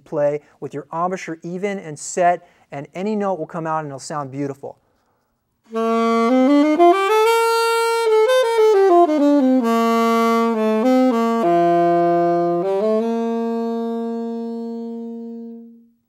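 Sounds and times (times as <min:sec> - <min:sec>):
alto saxophone solo: 0:05.7 - 0:16.0.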